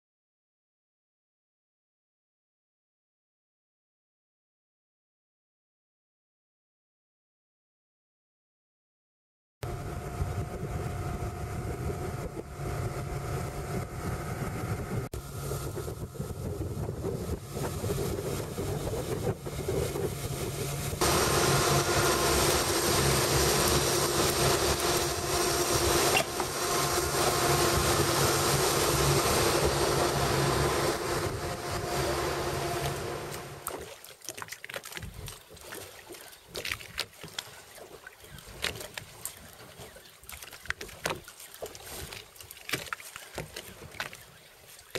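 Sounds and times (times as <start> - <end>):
outboard motor running: 9.6 - 44.9
wind: 9.6 - 44.9
water hiss: 21.0 - 31.0.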